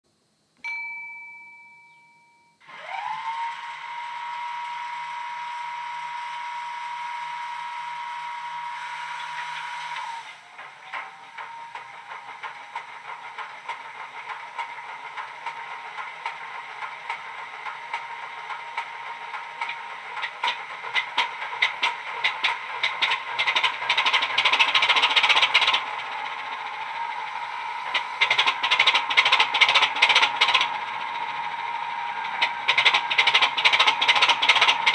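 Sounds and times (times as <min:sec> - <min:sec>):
short ringing tone: 0:00.6 - 0:02.7
steady whine: 0:01.7 - 0:34.9
clattering diesel engine beat: 0:10.5 - 0:34.9.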